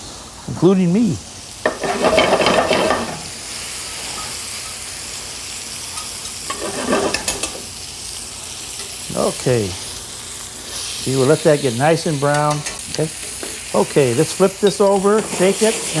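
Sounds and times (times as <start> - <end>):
food sizzling in pans: 0.0 - 16.0
fork stirring in metal pan: 15.1 - 16.0.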